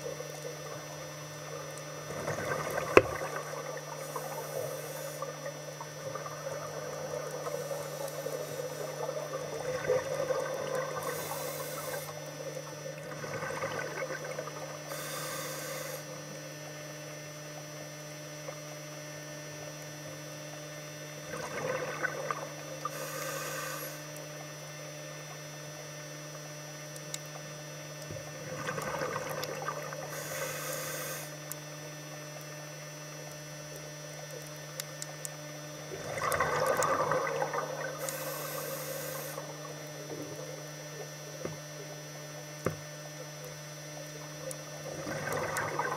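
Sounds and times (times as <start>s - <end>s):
steady hum: 0.0s - 45.9s
diver inhaling through regulator: 2.2s - 5.4s, 7.4s - 10.0s, 10.8s - 12.3s, 14.8s - 16.3s, 22.8s - 24.2s, 30.0s - 31.5s, 37.9s - 39.6s
exhaust bubbles rushing: 35.9s - 38.0s, 44.8s - 45.9s.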